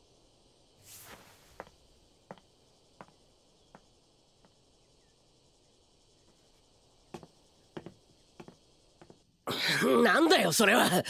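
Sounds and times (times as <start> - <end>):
faint footsteps: 0.9 - 4.6, 7.1 - 9.3.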